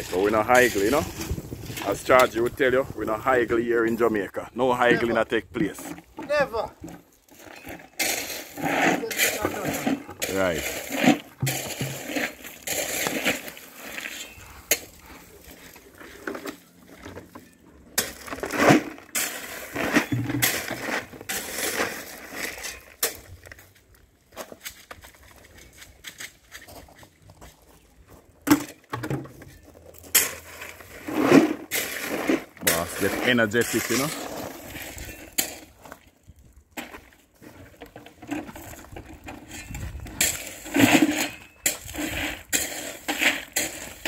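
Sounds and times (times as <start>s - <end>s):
gravel rattling into bucket: 0.0s - 4.3s, 4.9s - 44.0s
shovel scraping crushed stone: 7.3s - 17.2s, 17.9s - 23.4s, 30.0s - 36.0s, 36.8s - 44.0s.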